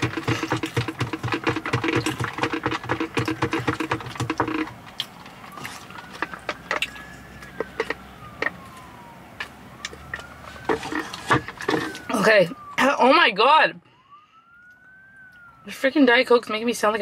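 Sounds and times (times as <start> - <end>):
chewing with wet mouth clicks: 0.1 - 10.3, 14.6 - 15.6.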